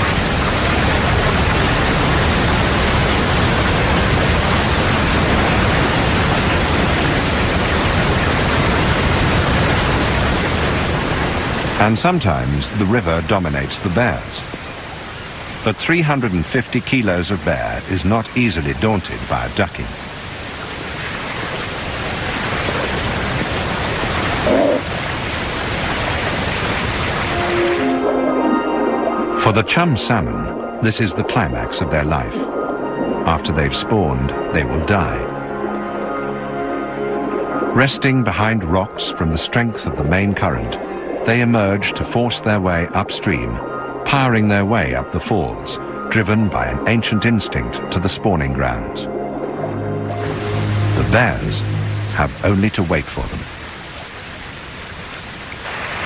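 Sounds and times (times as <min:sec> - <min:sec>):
river rushing white water: 0:00.0 - 0:12.2, 0:19.9 - 0:28.2, 0:50.1 - 0:56.0
brief low sound: 0:50.0 - 0:52.6.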